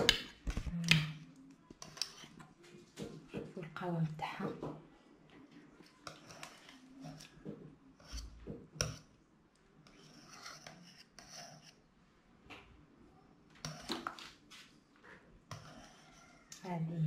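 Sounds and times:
whisk scraping a saucepan: 0:05.9 - 0:09.1, 0:09.8 - 0:11.8, 0:15.5 - 0:16.7.

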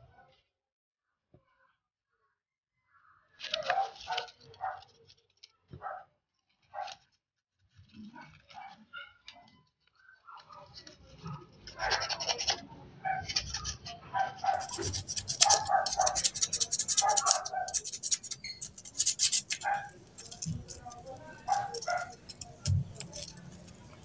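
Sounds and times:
sandpaper rubbing on metal: 0:14.4 - 0:24.0.

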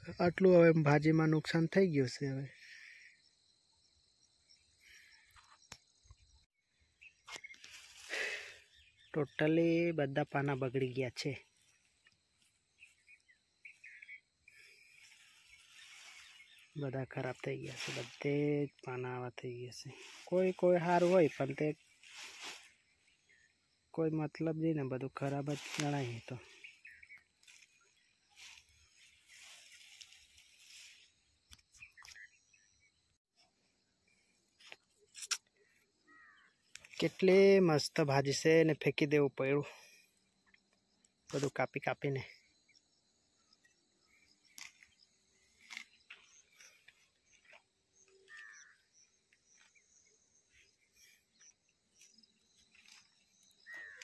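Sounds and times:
small chirps and ticks: 0:02.7 - 0:09.4, 0:10.2 - 0:17.4, 0:25.0 - 0:37.3, 0:39.8 - 0:54.0
leafy plants rustling: 0:07.0 - 0:23.9, 0:25.0 - 0:32.0, 0:44.1 - 0:54.0.

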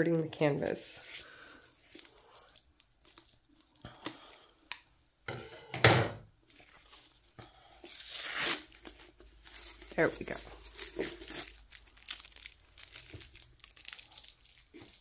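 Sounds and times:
tape being pulled off: 0:08.0 - 0:09.0.

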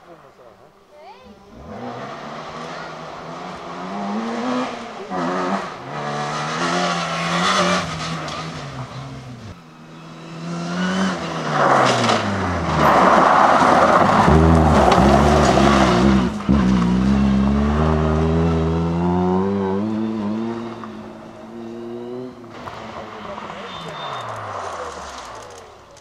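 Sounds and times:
rally car engine arriving: 0:01.4 - 0:26.0
rally car accelerating through gears: 0:01.5 - 0:25.3
gravel hissing under tyres: 0:11.3 - 0:16.9, 0:22.5 - 0:26.0.

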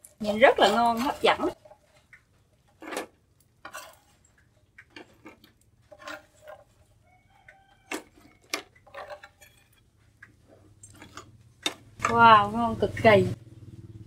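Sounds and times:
metal skimmer scraping a pan: 0:02.7 - 0:04.4, 0:05.0 - 0:07.0.

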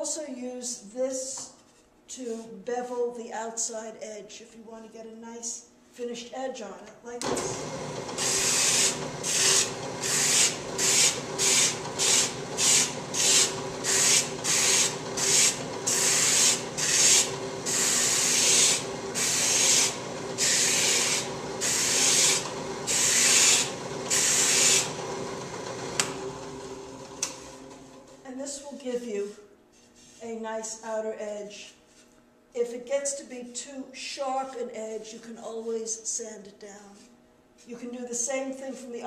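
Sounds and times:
drill press motor humming: 0:07.2 - 0:28.2
wooden bowl sanding: 0:08.1 - 0:25.1.

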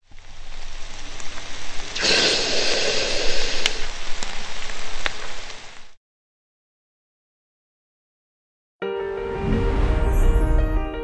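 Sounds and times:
hissing crackling noise: 0:00.0 - 0:06.0.

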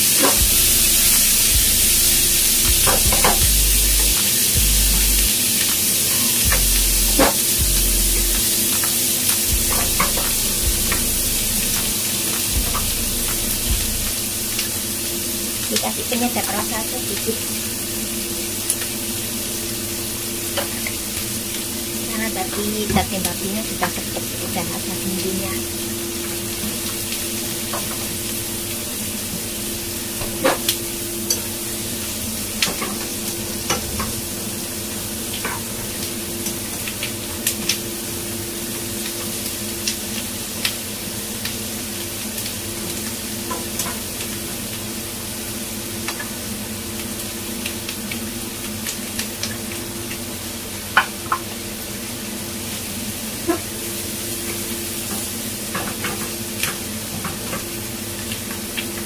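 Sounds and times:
steady hum: 0:00.0 - 0:37.0
food sizzling in oil: 0:00.0 - 0:59.0.

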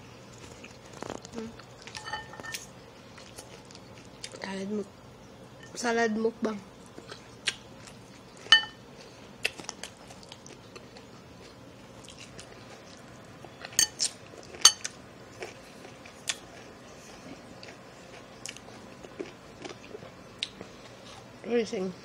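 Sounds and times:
person chewing: 0:00.3 - 0:04.4, 0:09.4 - 0:21.3.

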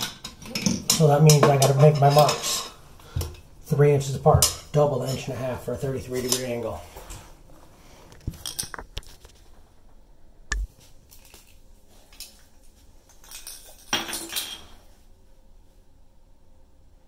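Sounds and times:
sharp knock: 0:10.5 - 0:10.7.

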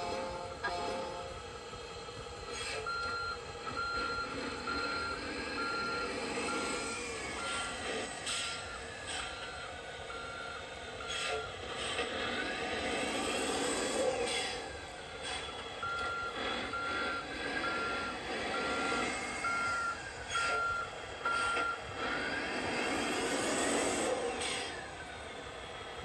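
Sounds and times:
reversing beeper: 0:02.5 - 0:25.4
simulated engine revving: 0:03.8 - 0:08.7, 0:11.1 - 0:20.0, 0:21.2 - 0:25.3.

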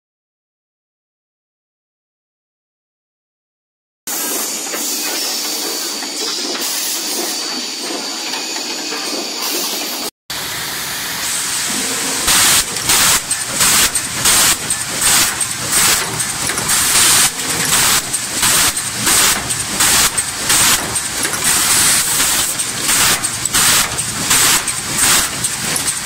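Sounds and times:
cross-cut saw machine running: 0:04.1 - 0:26.0
loud bursts of hiss: 0:09.4 - 0:26.0.

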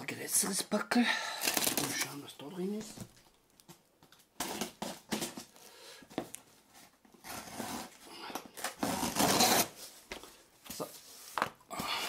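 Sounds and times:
cardboard scraping and tearing: 0:07.2 - 0:08.0, 0:08.6 - 0:09.9
knife slitting packing tape: 0:08.6 - 0:09.8.

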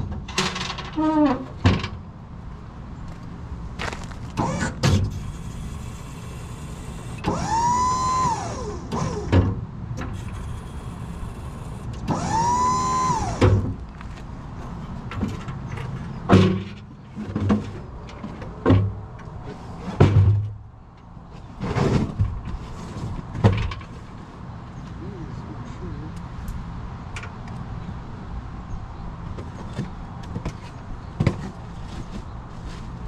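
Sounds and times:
power tool motor whine: 0:04.4 - 0:09.3, 0:10.1 - 0:13.6.

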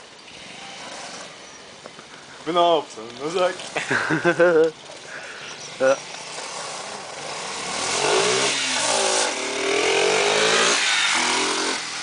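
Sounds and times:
mini bike engine revving: 0:00.2 - 0:01.4, 0:05.0 - 0:12.0.

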